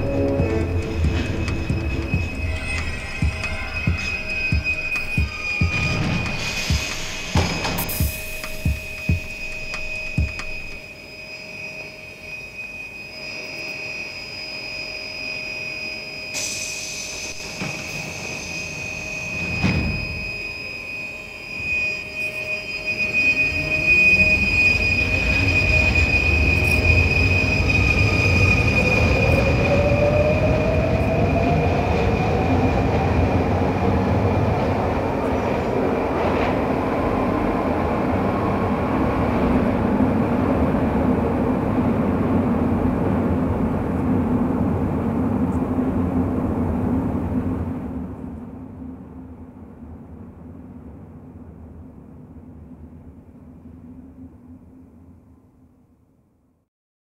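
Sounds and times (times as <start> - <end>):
low rumble: 0.0 - 10.8
tone rising in pitch: 0.0 - 16.3
high vehicle whine: 0.0 - 50.0.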